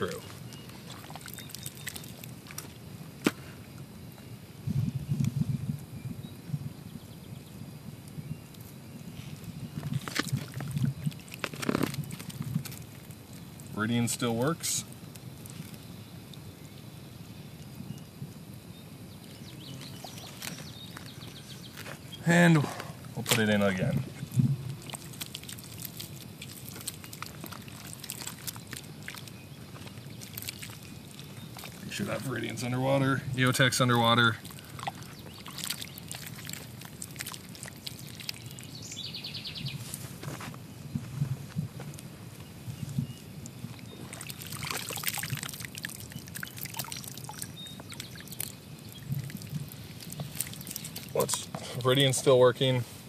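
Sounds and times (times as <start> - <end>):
muddy water pouring and dripping: 0.0 - 3.8, 7.3 - 18.0, 19.2 - 41.0, 41.8 - 52.8
hands squelching in mud: 0.2 - 3.4, 24.2 - 32.8, 33.6 - 40.2, 43.5 - 52.0
small splashes into tub: 34.4 - 38.6, 44.0 - 51.4.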